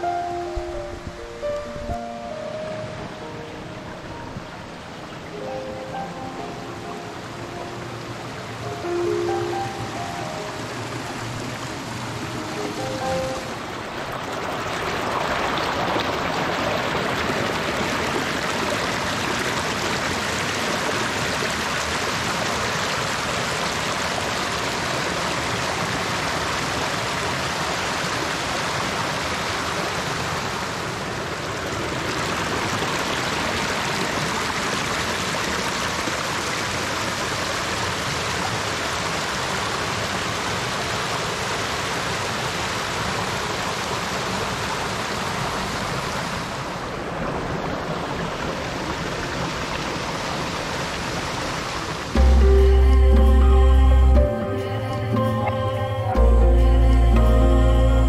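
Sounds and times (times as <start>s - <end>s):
brook running over stones: 10.2s - 52.2s.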